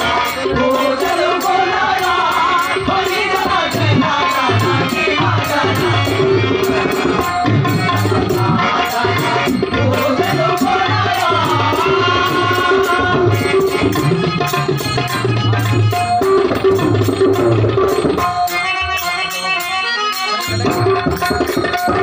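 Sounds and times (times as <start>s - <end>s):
man singing: 0.0s - 7.2s, 7.8s - 14.5s
harmonium: 0.0s - 22.0s
tabla drumming: 0.0s - 22.0s.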